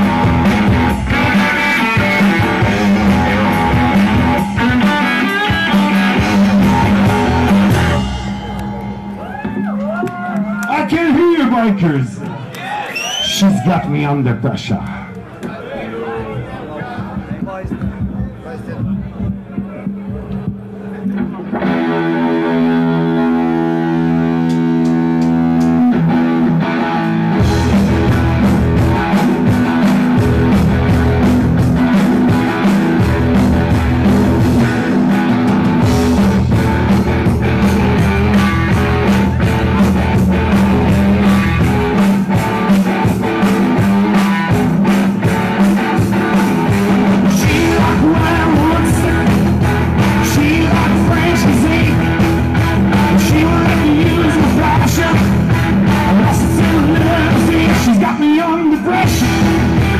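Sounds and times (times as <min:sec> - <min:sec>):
live rock band playing: 0:00.0 - 0:14.9, 0:16.0 - 0:59.9
guitar chord ringing: 0:00.1 - 0:10.6.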